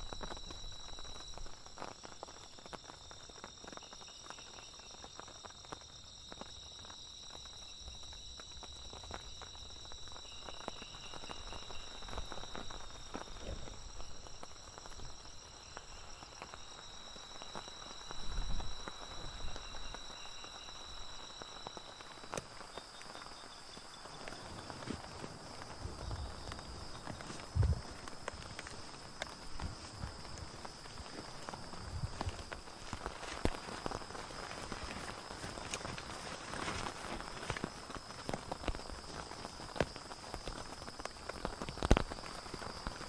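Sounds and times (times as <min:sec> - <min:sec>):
crickets trilling: 0:00.0 - 0:43.0
faint ticks: 0:21.7 - 0:43.0
dull low bump: 0:27.5 - 0:27.9.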